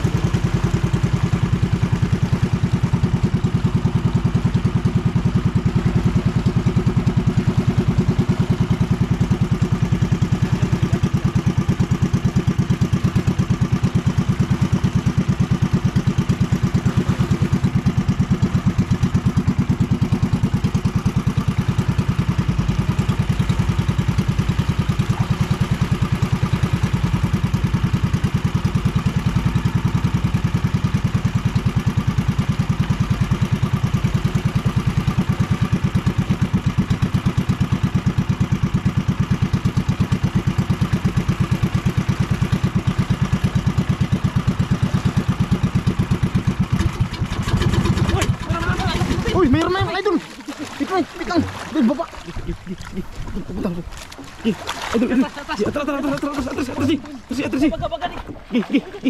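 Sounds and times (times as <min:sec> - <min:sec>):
small boat engine running: 0:00.0 - 0:59.0.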